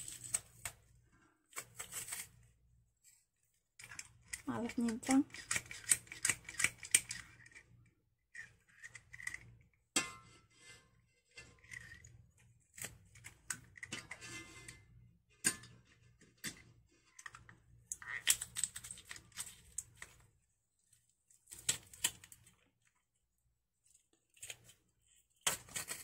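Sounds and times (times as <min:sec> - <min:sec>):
garlic press crushing garlic: 0:03.8 - 0:07.6.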